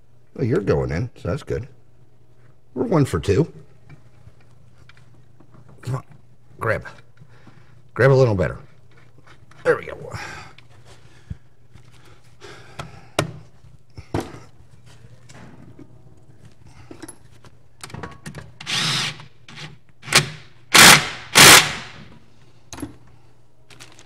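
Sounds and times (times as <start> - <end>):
cordless power tool bursts: 18.6 - 19.2, 20.0 - 22.1.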